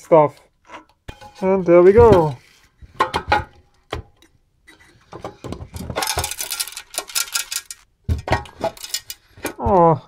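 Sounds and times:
metal clattering and scraping: 0:00.7 - 0:09.9.

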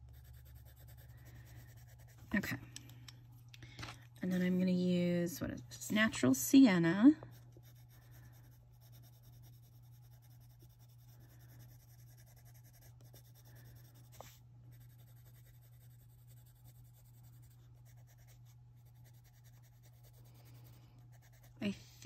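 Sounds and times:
pencil scratching on paper: 0:00.0 - 0:02.5, 0:07.2 - 0:22.0
steady low hum: 0:00.0 - 0:22.0.

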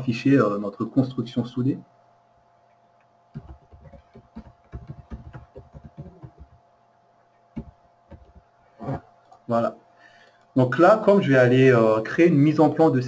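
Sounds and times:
faint steady hum: 0:00.0 - 0:13.0
computer keyboard typing: 0:03.4 - 0:06.6, 0:07.6 - 0:08.4.

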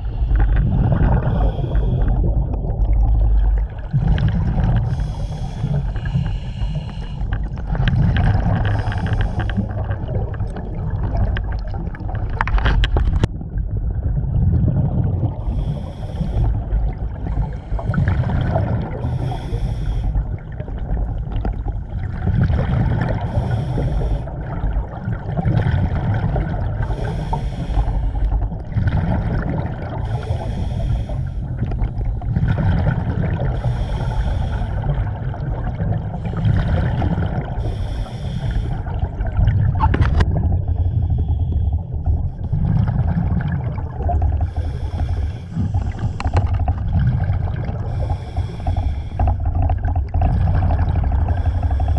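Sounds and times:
scuba regulator breathing: 0:00.0 - 0:02.4, 0:04.7 - 0:10.6, 0:15.4 - 0:20.5, 0:23.1 - 0:24.6, 0:26.8 - 0:28.5, 0:29.9 - 0:32.3, 0:33.3 - 0:35.4, 0:36.1 - 0:39.4, 0:40.0 - 0:42.6, 0:44.1 - 0:46.8, 0:47.5 - 0:49.8, 0:51.1 - 0:51.9
exhaled bubbles underwater: 0:00.0 - 0:51.9
steady low rumble: 0:00.0 - 0:51.9.

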